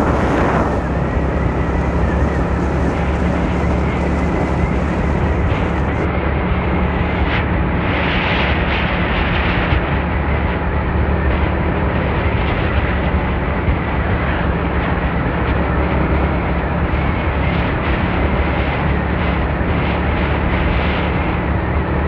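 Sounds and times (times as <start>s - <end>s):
motorcycle engine running: 0.0s - 7.4s
wind and road noise: 0.0s - 22.0s.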